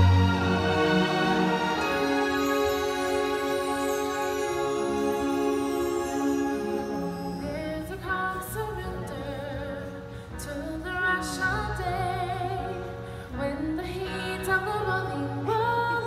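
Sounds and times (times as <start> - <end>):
sustained bass notes: 0.0 - 9.2.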